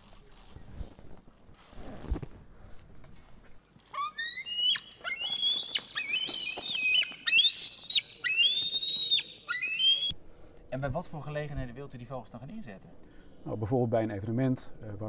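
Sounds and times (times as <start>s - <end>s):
eagle whistled calls: 4.0s - 10.1s.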